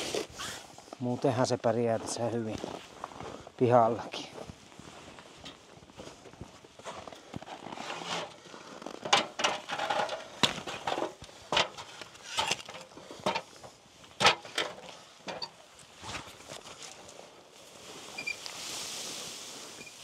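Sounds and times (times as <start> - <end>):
snow being cleared from roof: 0.0 - 0.9, 7.4 - 9.0, 17.1 - 20.0
boots crunching on snow: 1.6 - 9.0.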